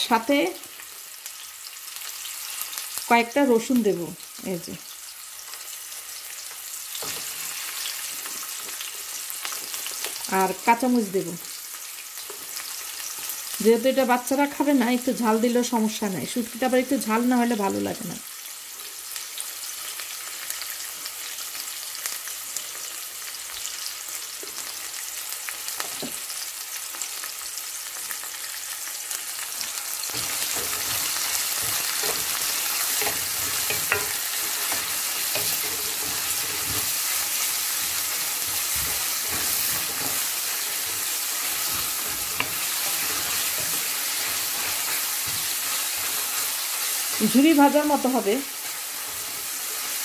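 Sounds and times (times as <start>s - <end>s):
onions sizzling in hot oil: 0.0s - 50.0s
spatula knocking on pan: 30.2s - 36.9s.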